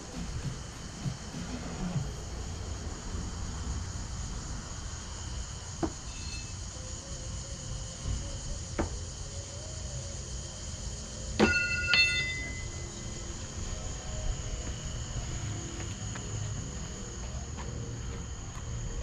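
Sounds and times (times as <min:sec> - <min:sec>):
crickets chirping: 0:00.0 - 0:19.0
metallic ringing clang: 0:11.4 - 0:12.9.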